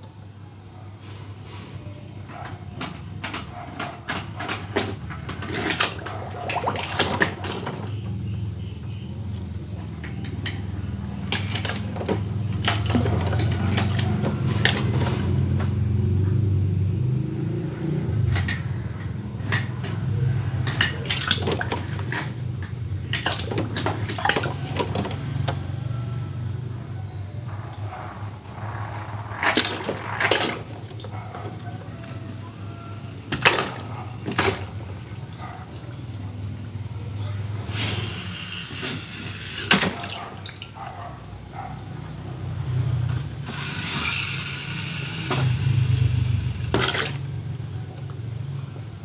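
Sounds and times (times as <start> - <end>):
toy cars clinking and clattering: 2.4 - 6.4, 10.0 - 15.4, 18.2 - 25.4, 27.4 - 34.8, 43.1 - 48.2
splashes into water: 5.7 - 8.0.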